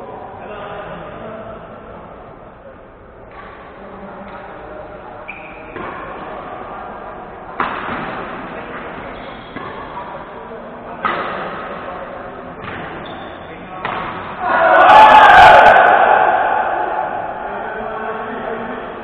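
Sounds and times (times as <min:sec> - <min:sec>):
murmur of voices: 0:00.0 - 0:19.0
rackets hitting shuttlecock: 0:05.6 - 0:06.5, 0:07.6 - 0:10.2, 0:11.0 - 0:12.0, 0:12.6 - 0:14.4.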